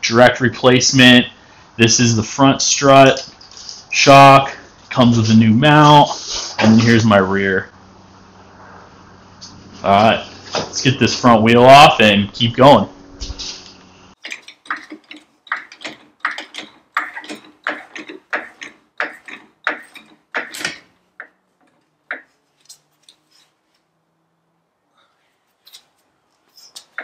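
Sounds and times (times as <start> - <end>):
floor jack clicking while pumped: 14.2 - 22.3.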